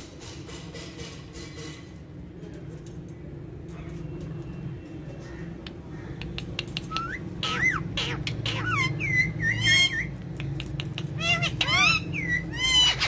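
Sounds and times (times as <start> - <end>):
parakeets whistling and chirping: 6.8 - 10.3, 11.0 - 13.0.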